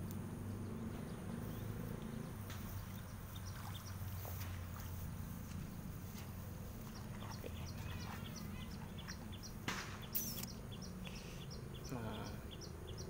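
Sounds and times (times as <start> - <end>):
steady low hum: 0.0 - 13.0
bird chirping: 0.5 - 4.5, 6.8 - 13.0
warbling bird call: 7.3 - 10.6.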